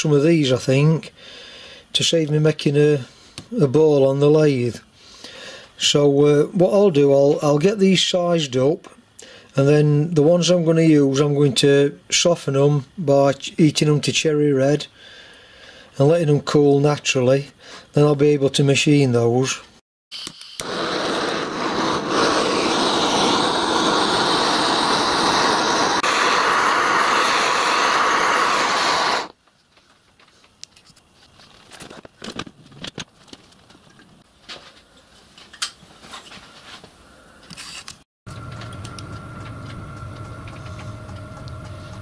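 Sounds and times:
blowtorch hissing: 0:20.5 - 0:29.4, 0:38.3 - 0:42.0.

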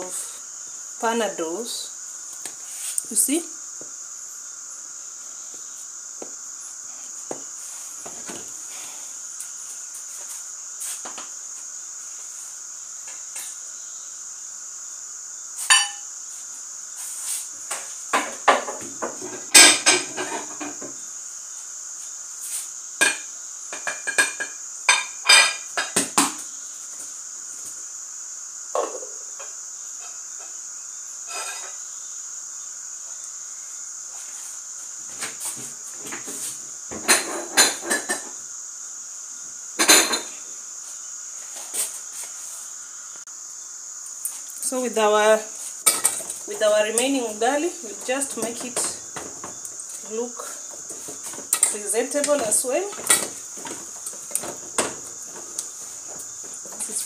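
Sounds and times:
steady high-pitched hiss: 0:00.0 - 0:57.0
utensils clattering on pots and dishes: 0:15.7 - 0:16.0, 0:18.2 - 0:20.9, 0:23.0 - 0:26.2, 0:31.3 - 0:31.8, 0:37.0 - 0:38.4, 0:39.8 - 0:40.3, 0:45.8 - 0:46.5, 0:47.9 - 0:49.6, 0:50.8 - 0:57.0.

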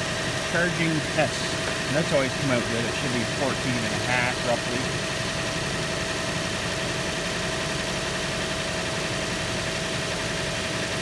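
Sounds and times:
steady whine: 0:00.0 - 0:07.2
car engine idling: 0:00.0 - 0:11.0.

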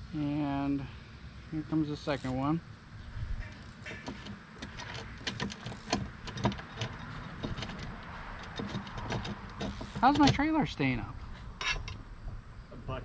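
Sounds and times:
metal parts clicking and tapping: 0:03.5 - 0:10.4, 0:11.6 - 0:12.0.

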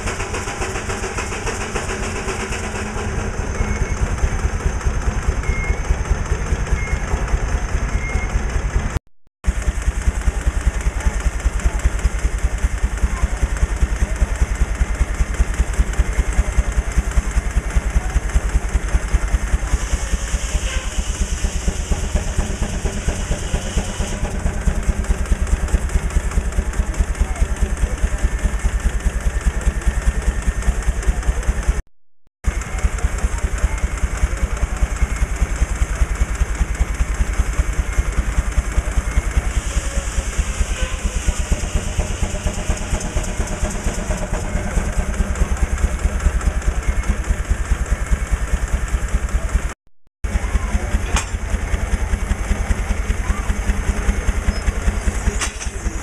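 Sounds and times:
steam engine exhaust beating: 0:00.0 - 0:31.8, 0:32.4 - 0:56.0
steam hiss: 0:19.6 - 0:24.7, 0:39.2 - 0:44.3.

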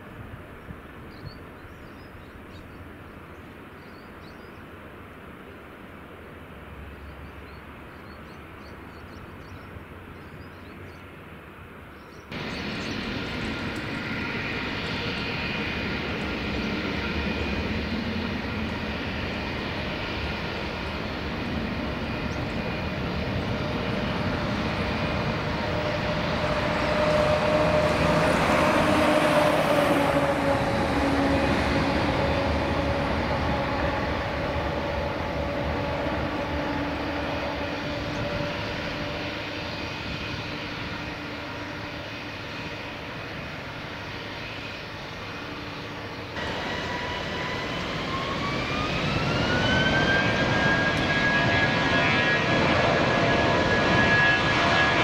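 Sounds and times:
jet engines roaring past: 0:00.0 - 0:55.0
jet engines spooling up: 0:12.3 - 0:55.0.

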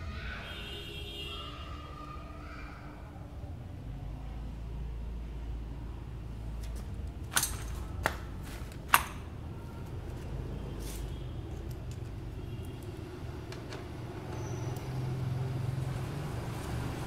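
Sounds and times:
plastic clicks and clinks: 0:06.6 - 0:09.3.

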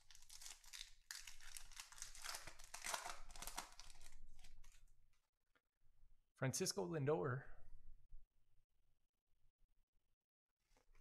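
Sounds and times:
foil wrapper tearing and crinkling: 0:00.0 - 0:04.8.

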